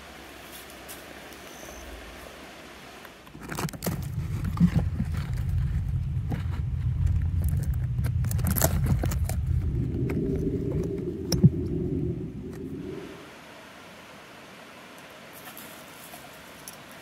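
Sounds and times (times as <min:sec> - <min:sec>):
faint hiss: 0:00.0 - 0:03.4, 0:04.0 - 0:17.0
low rumble: 0:03.9 - 0:13.3.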